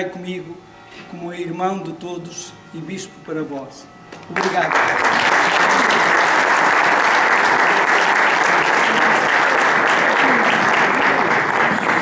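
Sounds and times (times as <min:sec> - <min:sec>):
crowd applauding: 0:04.3 - 0:12.0.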